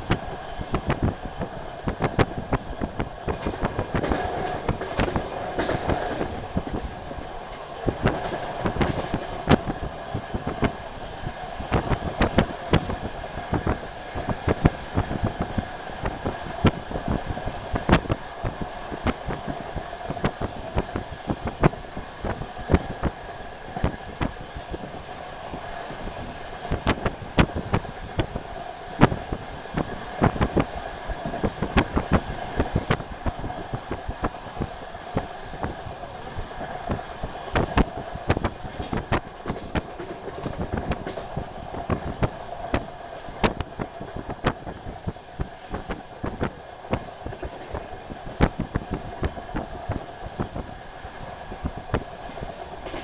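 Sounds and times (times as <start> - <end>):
train running gear drone: 0.0 - 53.0
wheels clicking on track: 37.6 - 42.8.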